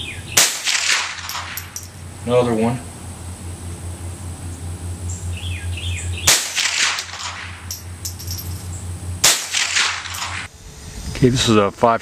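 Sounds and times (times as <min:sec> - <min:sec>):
rifle shot with echo: 0:00.4 - 0:01.6, 0:06.3 - 0:07.6, 0:09.2 - 0:10.5
bird chirping: 0:05.1 - 0:06.3.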